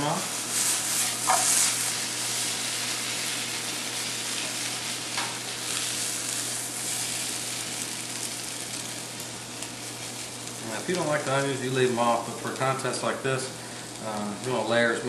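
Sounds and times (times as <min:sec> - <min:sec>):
onions sizzling in a pan: 0:00.0 - 0:15.0
scraping a pan: 0:00.6 - 0:02.0.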